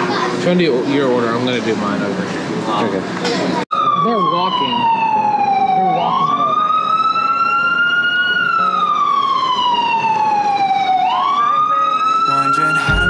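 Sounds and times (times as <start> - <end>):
wailing siren: 3.7 - 13.0.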